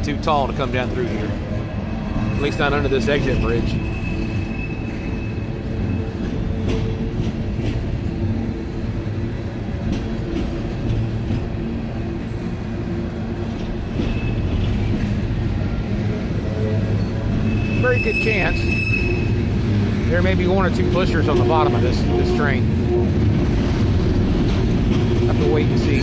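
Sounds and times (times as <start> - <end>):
steel wheels rumbling on rail: 0.0 - 26.0
faint high squeal: 2.2 - 6.0, 14.0 - 14.6, 17.0 - 19.4.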